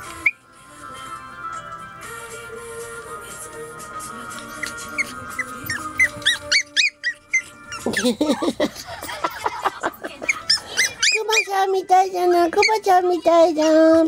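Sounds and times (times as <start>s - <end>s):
background music: 0.0s - 14.0s
puppy yipping: 4.9s - 8.2s, 10.2s - 11.7s, 12.6s - 12.9s, 13.5s - 14.0s.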